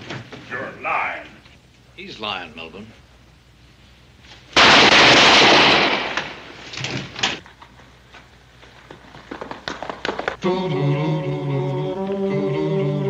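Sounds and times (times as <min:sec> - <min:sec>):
loud harsh crash: 0:04.6 - 0:06.6.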